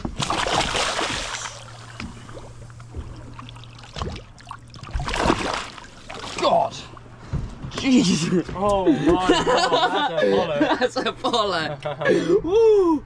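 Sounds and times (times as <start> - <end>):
fish splashing into sea: 0.0 - 6.7
water lapping at boat side: 0.0 - 7.8
steady low hum: 0.0 - 13.0
hand splashing in water: 0.2 - 2.0, 3.2 - 6.6.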